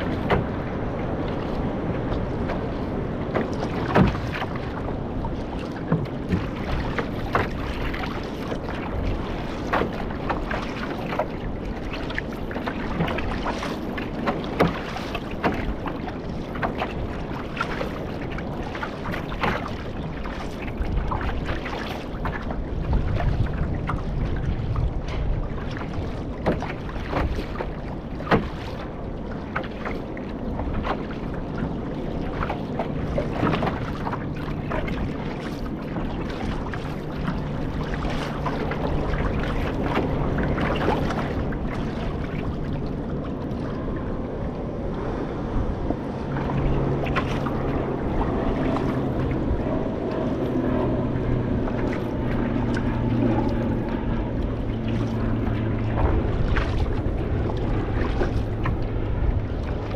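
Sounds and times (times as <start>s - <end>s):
paddle splashes: 0.0s - 59.9s
water splashing around canoe: 0.0s - 59.9s
wind noise on microphone: 18.5s - 28.4s, 43.8s - 59.9s.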